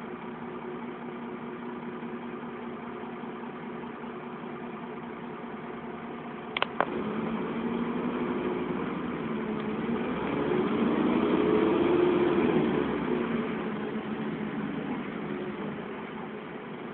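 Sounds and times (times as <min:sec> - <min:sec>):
bus engine: 0:00.0 - 0:16.9
sharp clicks: 0:06.5 - 0:07.0.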